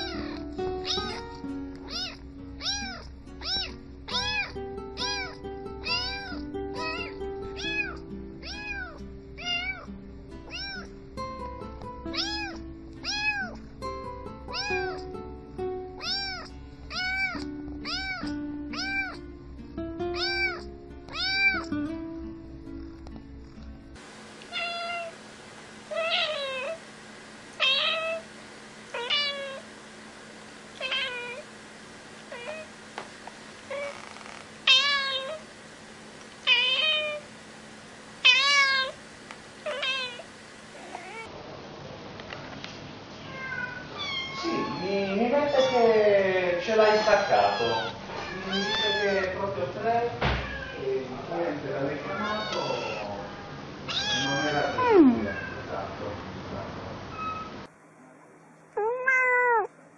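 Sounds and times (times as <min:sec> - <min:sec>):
adult cat meowing: 0:00.0 - 0:09.9, 0:10.5 - 0:10.9, 0:12.1 - 0:13.6, 0:14.5 - 0:15.0, 0:16.0 - 0:19.2, 0:20.1 - 0:21.7, 0:24.5 - 0:25.1, 0:25.9 - 0:26.8, 0:27.6 - 0:28.2, 0:28.9 - 0:29.6, 0:30.8 - 0:31.4, 0:32.3 - 0:32.7, 0:33.7 - 0:35.4, 0:36.4 - 0:37.2, 0:38.2 - 0:39.0, 0:39.6 - 0:41.3, 0:43.2 - 0:46.0, 0:46.6 - 0:49.4, 0:50.3 - 0:50.9, 0:52.0 - 0:55.6, 0:58.8 - 0:59.7
kitten meowing: 0:00.0 - 0:10.9, 0:12.1 - 0:13.6, 0:14.5 - 0:15.1, 0:16.0 - 0:19.2, 0:20.1 - 0:21.7, 0:24.5 - 0:25.1, 0:25.9 - 0:26.8, 0:27.6 - 0:28.2, 0:29.0 - 0:29.6, 0:30.8 - 0:31.4, 0:32.3 - 0:32.7, 0:33.7 - 0:35.4, 0:36.5 - 0:37.2, 0:38.2 - 0:39.0, 0:39.7 - 0:41.3, 0:43.3 - 0:46.0, 0:46.7 - 0:49.4, 0:50.3 - 0:50.9, 0:52.0 - 0:55.6, 0:58.8 - 0:59.7
background music: 0:00.0 - 0:24.0.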